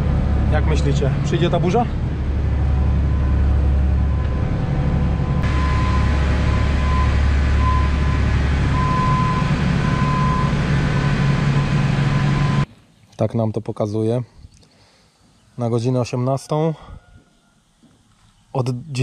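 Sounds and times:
vehicle engine humming: 0.0s - 12.7s.

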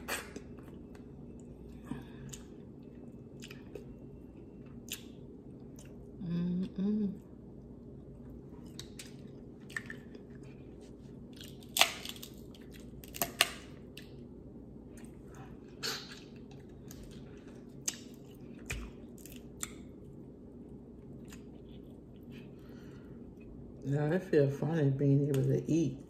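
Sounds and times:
wet chewing: 0.0s - 6.1s
steady low hum: 0.0s - 26.0s
seafood shells cracking: 11.4s - 14.2s.

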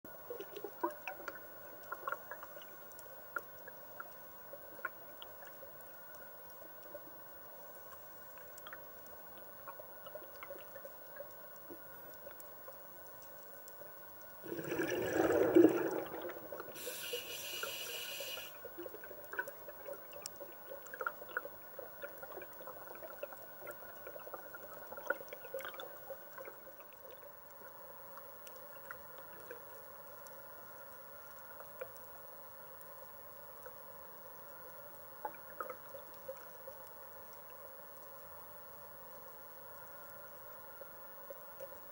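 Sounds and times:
faint underwater clicks: 0.1s - 41.9s
bubbling: 14.4s - 26.0s
short high hiss: 16.8s - 18.6s.

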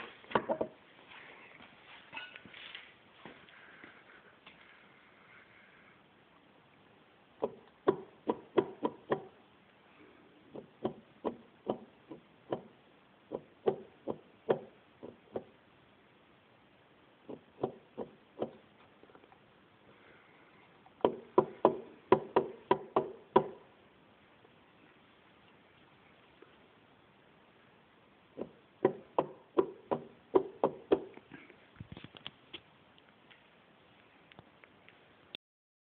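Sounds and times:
sharp metallic knocks: 21.0s - 23.6s, 28.4s - 31.1s.

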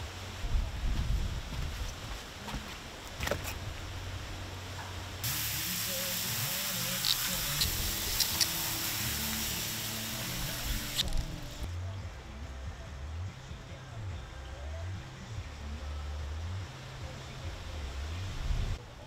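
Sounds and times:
hose nozzle spraying water: 5.2s - 11.7s.

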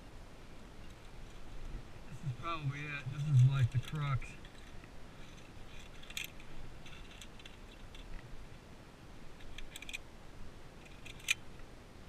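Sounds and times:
low steady rumble: 0.0s - 12.0s
carabiners clinking on steel cable: 3.0s - 8.2s, 9.4s - 10.0s, 10.8s - 11.4s.

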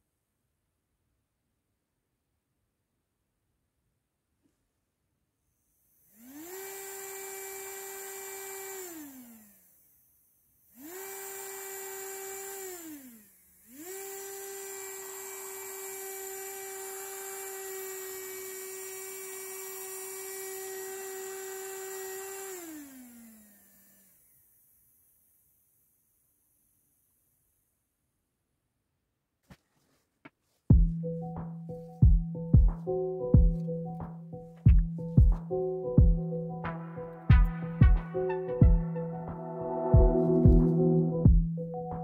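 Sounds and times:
small electric motor whining: 5.6s - 27.7s.

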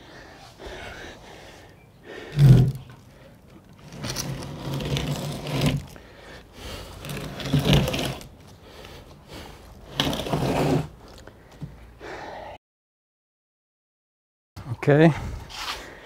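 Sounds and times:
pallet scraping on concrete: 2.2s - 6.0s, 6.8s - 8.9s, 9.8s - 11.2s.

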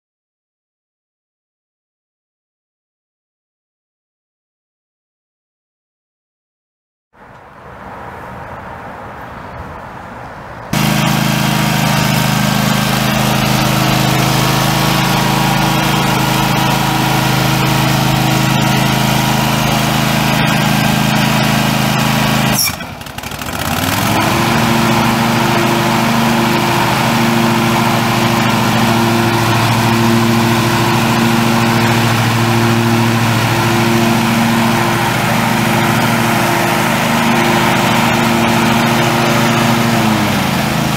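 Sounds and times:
lawn tractor engine running: 10.8s - 40.9s.

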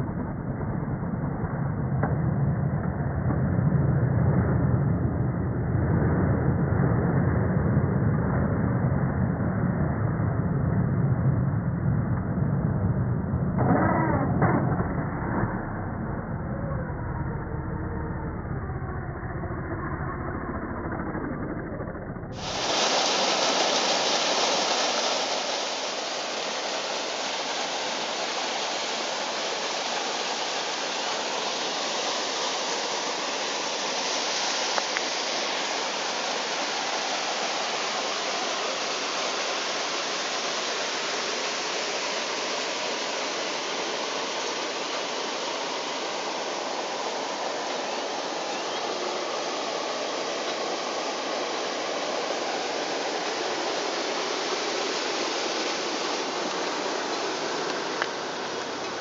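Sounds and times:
waterfall pouring into pool: 18.4s - 59.0s.

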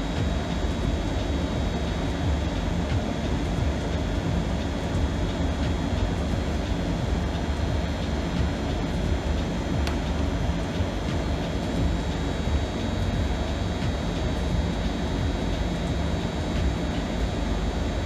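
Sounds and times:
low background rumble: 0.0s - 18.0s.

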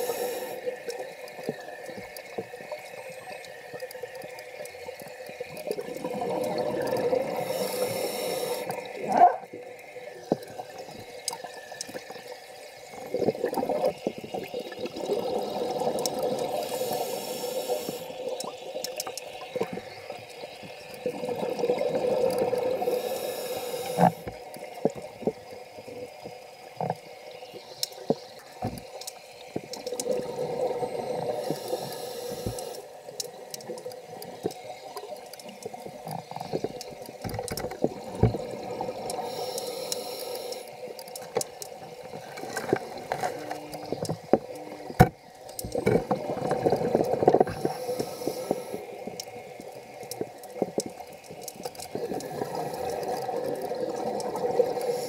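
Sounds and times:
high regulator hiss: 0.0s - 0.7s, 7.3s - 9.0s, 16.4s - 18.3s, 22.7s - 24.5s, 31.1s - 33.0s, 39.2s - 41.3s, 47.2s - 49.4s, 54.6s - 55.0s
bubbling exhaled air: 5.8s - 9.5s, 51.8s - 55.0s.

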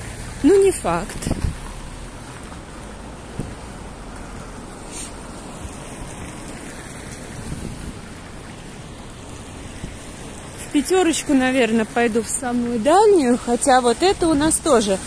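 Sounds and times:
passing traffic: 0.0s - 15.0s
wind on microphone: 1.1s - 1.7s, 7.3s - 8.3s.

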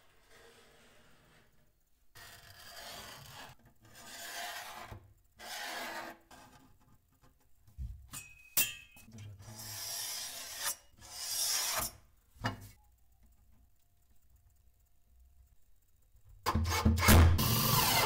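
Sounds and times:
marker rubbing along ruler: 0.0s - 6.7s, 9.5s - 12.0s.

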